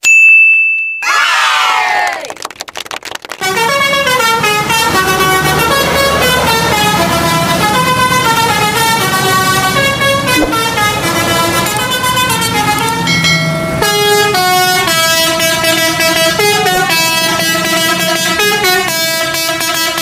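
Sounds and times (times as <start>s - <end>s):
horn playing stepped notes: 3.4s - 13.2s.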